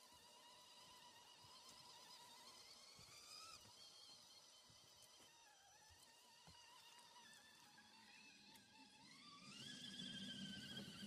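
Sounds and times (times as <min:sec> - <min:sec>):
electric motor whine: 0:00.0 - 0:11.0.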